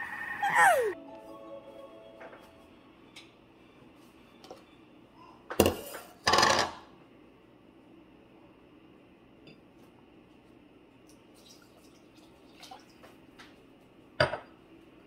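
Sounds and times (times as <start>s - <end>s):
water trickling and dripping: 11.1s - 13.2s.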